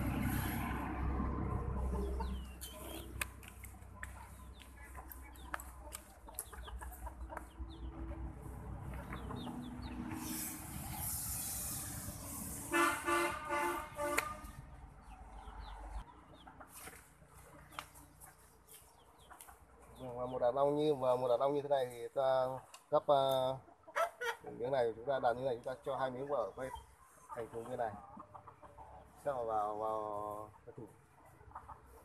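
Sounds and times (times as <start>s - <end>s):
faint chirps and clicks: 2.4s - 7.6s, 17.6s - 19.6s.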